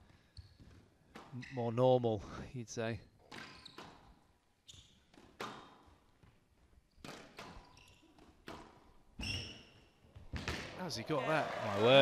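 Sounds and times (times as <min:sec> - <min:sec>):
squash ball smacks: 0:10.3 - 0:10.8.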